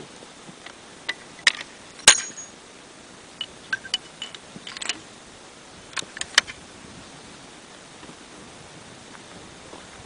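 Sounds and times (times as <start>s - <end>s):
light metallic clicks and clinks: 1.1s - 2.6s, 3.4s - 5.0s.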